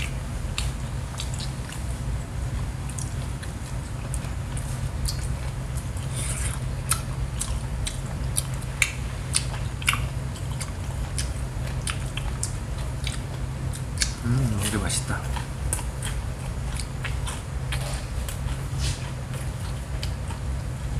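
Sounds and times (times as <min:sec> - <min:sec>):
wet mouth clicks and smacks: 0:00.0 - 0:01.8, 0:06.8 - 0:14.2
close chewing: 0:00.0 - 0:20.9.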